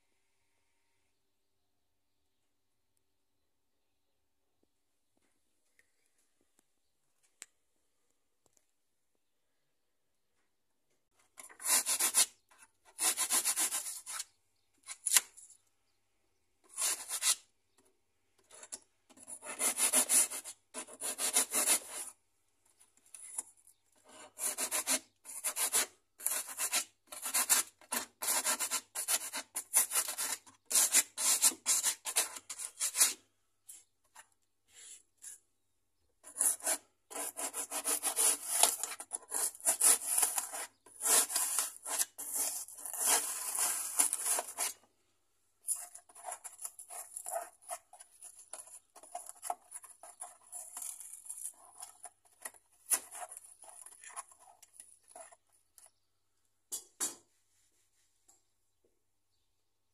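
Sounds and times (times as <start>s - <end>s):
hacksaw sawing foam: 11.4s - 14.3s, 16.7s - 17.5s, 18.6s - 22.2s, 24.0s - 33.3s, 36.2s - 44.9s.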